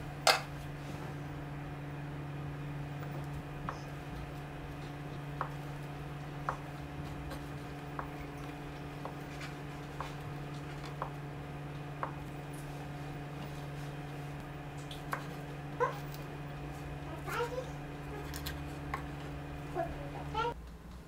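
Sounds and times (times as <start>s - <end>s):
steady low hum: 0.0s - 21.0s
knife tapping on wooden cutting board: 6.4s - 9.2s.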